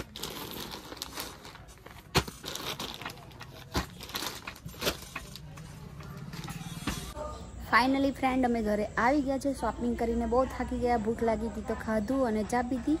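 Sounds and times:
plastic packaging crinkling: 0.0s - 5.6s.

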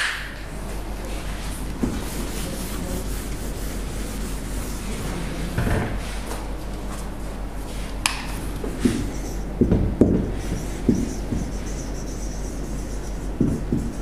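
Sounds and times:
low electrical hum: 0.0s - 14.0s
marker tapping on whiteboard: 8.1s - 12.0s, 13.3s - 14.0s.

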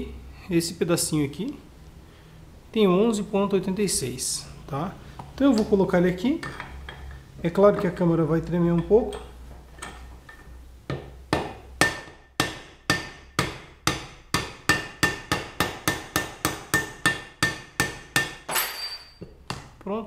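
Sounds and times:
hammer striking steel rod: 10.9s - 19.7s.

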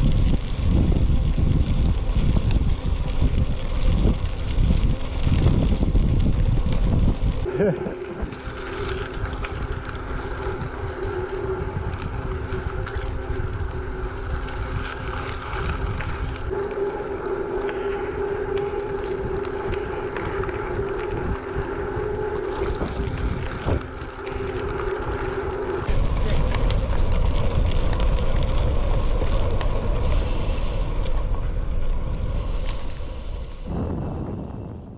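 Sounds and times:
bicycle clicks and rattles: 0.0s - 16.5s, 22.0s - 33.7s
bicycle tyre hum on gravel: 0.0s - 34.9s
wind on microphone: 0.0s - 34.9s.

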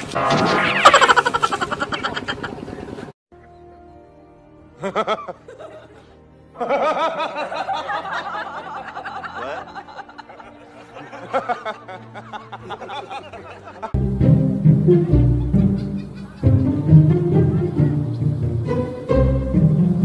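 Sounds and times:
high-pitched laughter: 0.8s - 3.1s, 15.4s - 18.0s
background music: 3.3s - 20.0s.

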